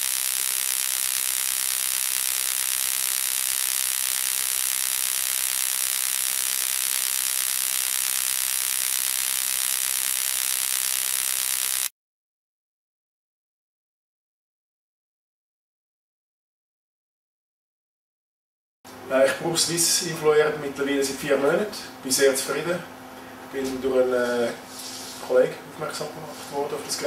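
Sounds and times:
hissy electric buzz: 0:00.0 - 0:11.9.

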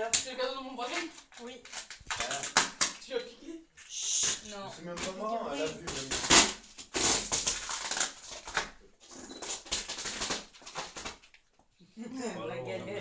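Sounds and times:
packing tape peeling off cardboard: 0:00.9 - 0:03.0, 0:04.0 - 0:08.8, 0:09.4 - 0:11.5.

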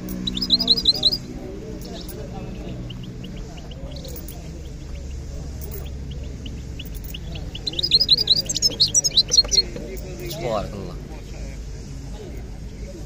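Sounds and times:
finch chirping and singing: 0:00.0 - 0:10.4
murmur of crowd voices: 0:00.0 - 0:13.0.

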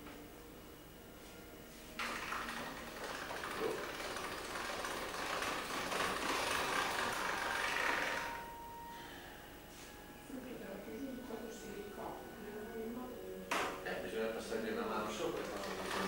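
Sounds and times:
pasta roller machine running: 0:02.0 - 0:08.5, 0:14.7 - 0:16.0.

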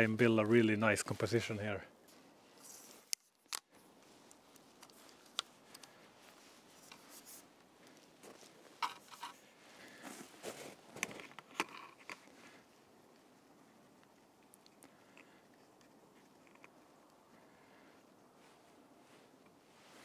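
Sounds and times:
camera gear clicks and scrapes: 0:08.8 - 0:09.4, 0:11.0 - 0:12.3.

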